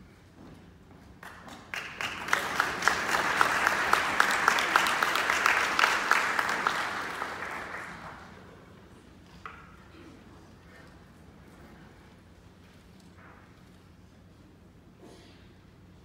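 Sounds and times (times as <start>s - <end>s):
close person clapping: 1.2s - 8.4s
audience applauding: 1.2s - 8.6s.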